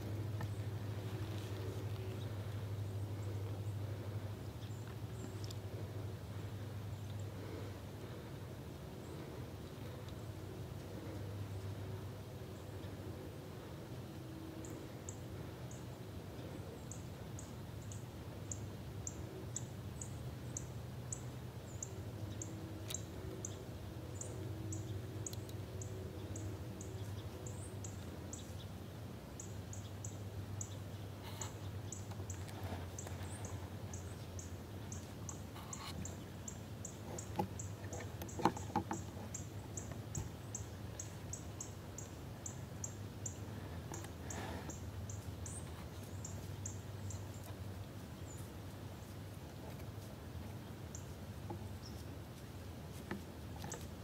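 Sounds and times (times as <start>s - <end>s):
rustling in dry leaves: 0.0s - 4.3s
low steady hum: 0.0s - 54.0s.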